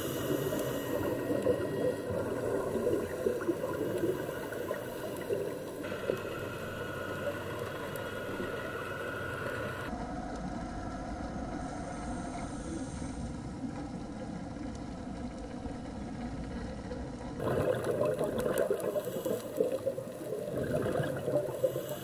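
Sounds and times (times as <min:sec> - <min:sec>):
low mechanical hum: 0:00.0 - 0:22.0
underwater noise: 0:00.0 - 0:22.0.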